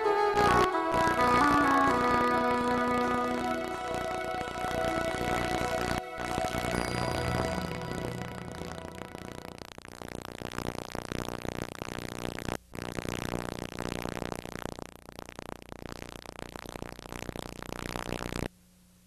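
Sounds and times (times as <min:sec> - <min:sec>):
synthesizer music: 0:00.0 - 0:09.7.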